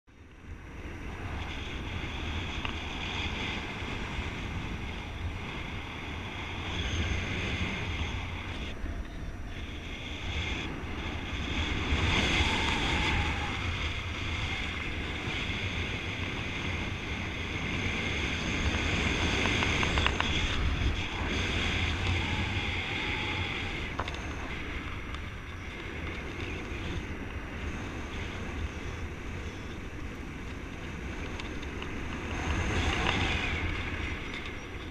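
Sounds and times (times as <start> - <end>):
wind rushing over microphone: 0.1 - 34.9.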